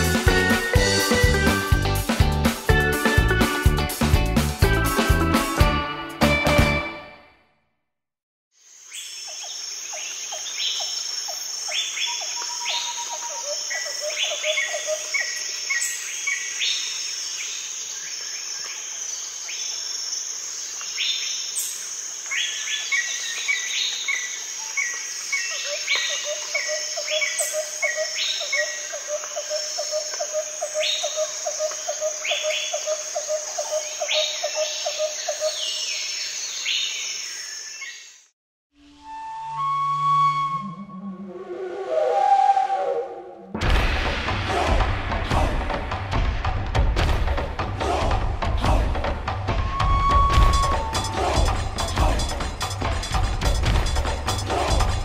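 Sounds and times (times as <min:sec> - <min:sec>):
high insect hum: 0:08.6 - 0:38.3
low repeated call: 0:47.6 - 0:52.9, 0:54.3 - 0:55.0.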